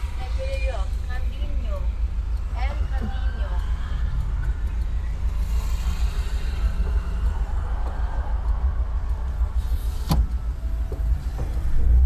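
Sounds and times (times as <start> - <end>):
van engine and road rumble: 0.0 - 12.0.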